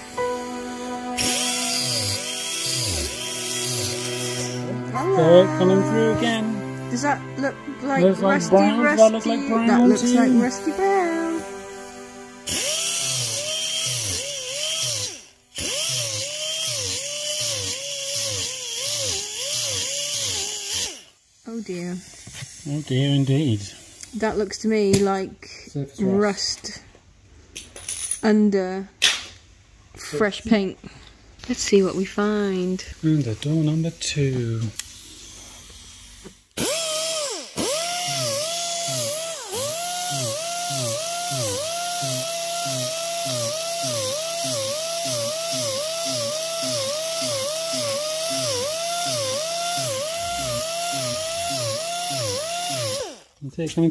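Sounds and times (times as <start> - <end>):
rotary sanding disc grinding metal: 1.2 - 4.9, 12.5 - 21.0, 37.2 - 53.2.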